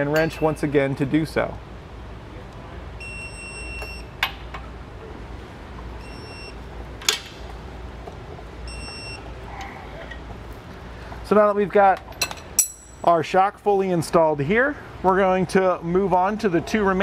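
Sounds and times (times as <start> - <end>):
metallic clinks of wrench: 12.2 - 13.1.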